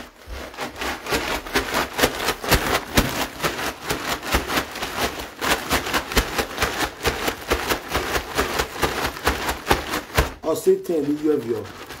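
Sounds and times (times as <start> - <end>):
cloth rubbing on phone microphone: 0.0 - 2.3.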